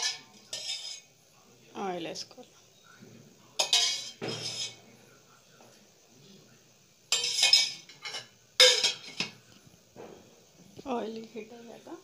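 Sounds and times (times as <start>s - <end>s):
metal utensils clattering on cookware: 0.0s - 1.1s, 3.6s - 4.8s, 7.1s - 9.4s.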